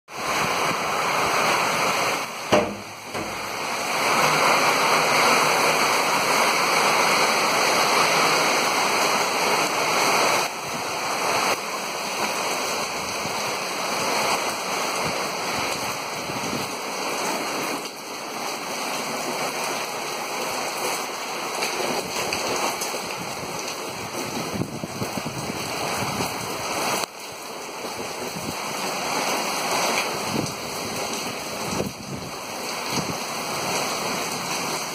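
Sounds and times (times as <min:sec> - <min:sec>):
torrential rain: 0:00.1 - 0:34.9
wind: 0:00.1 - 0:34.9
sharp knock: 0:02.5 - 0:03.5.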